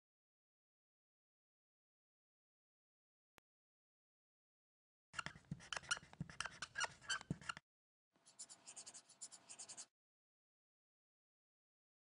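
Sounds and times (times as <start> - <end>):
marker scribbling on paper: 5.2 - 7.6, 8.2 - 9.9.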